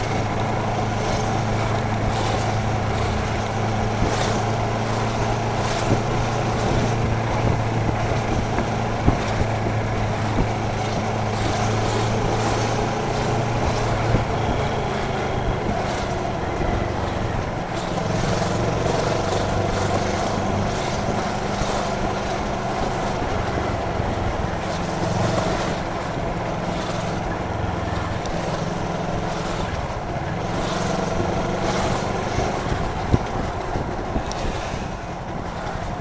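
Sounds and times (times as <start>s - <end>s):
motorcycle engine running: 0.0s - 36.0s
wind noise on microphone: 0.0s - 36.0s.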